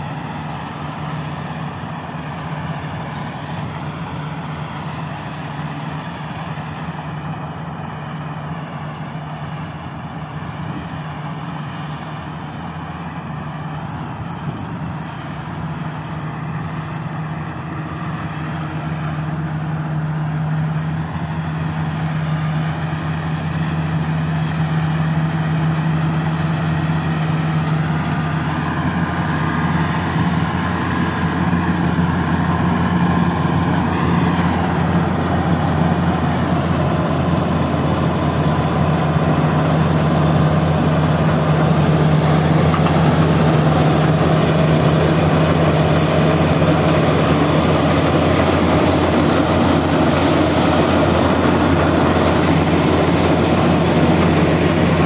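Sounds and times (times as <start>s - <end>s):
combine harvester running: 0.0s - 55.0s.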